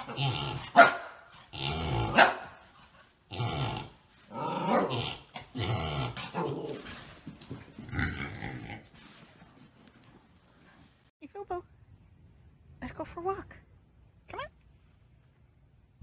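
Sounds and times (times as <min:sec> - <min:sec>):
dog play-growling and barking: 0:00.0 - 0:09.3.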